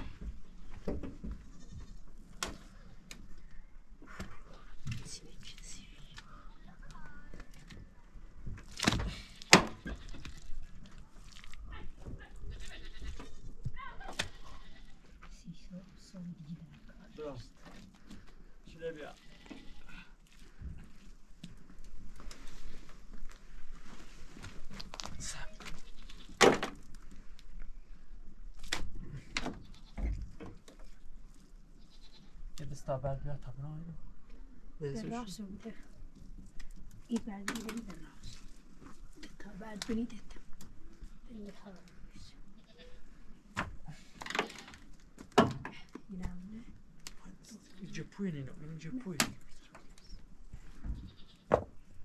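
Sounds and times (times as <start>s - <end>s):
goats and sheep bleating: 9.2s - 10.6s, 12.2s - 15.2s, 19.1s - 20.2s, 31.8s - 32.4s, 42.5s - 43.2s, 51.0s - 51.5s.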